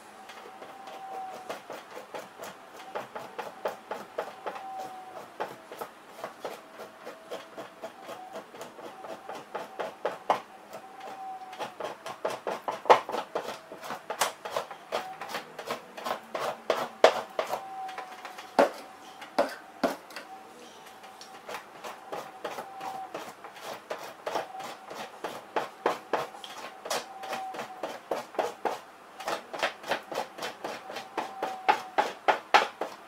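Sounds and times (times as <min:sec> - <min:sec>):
knife scraping pelt: 0:11.0 - 0:18.0, 0:21.5 - 0:33.0.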